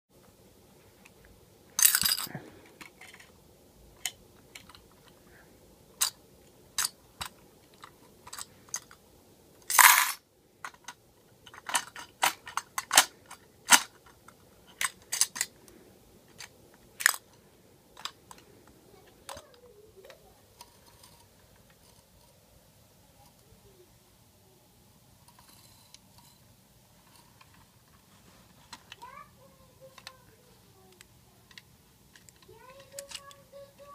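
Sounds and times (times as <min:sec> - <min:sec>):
toy truck parts clicking and knocking: 0:01.8 - 0:03.4, 0:04.0 - 0:05.2, 0:06.0 - 0:09.0, 0:09.6 - 0:15.6, 0:16.3 - 0:22.4, 0:29.8 - 0:30.3, 0:30.9 - 0:33.9.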